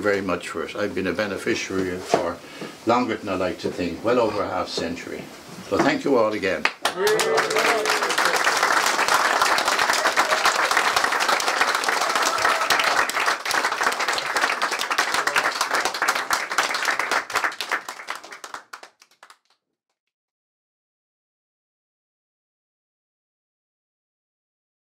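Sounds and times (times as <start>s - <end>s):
crowd applauding: 6.6s - 19.6s.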